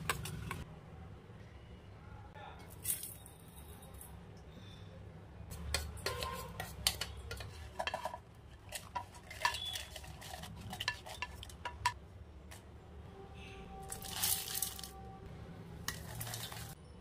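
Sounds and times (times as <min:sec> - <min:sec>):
spatula scraping into metal jar: 0:05.7 - 0:12.0
metal jar and bowl clattering: 0:06.0 - 0:12.0, 0:13.9 - 0:15.0, 0:15.9 - 0:16.8.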